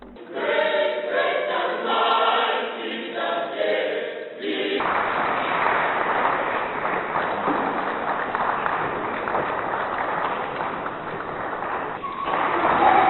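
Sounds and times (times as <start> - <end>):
mixed choir singing: 0.2 - 5.2.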